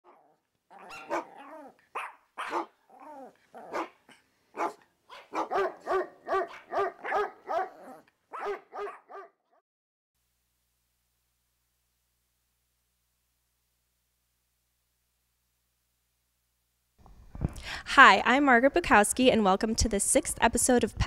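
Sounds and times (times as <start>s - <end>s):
dog barking: 0.0s - 9.6s.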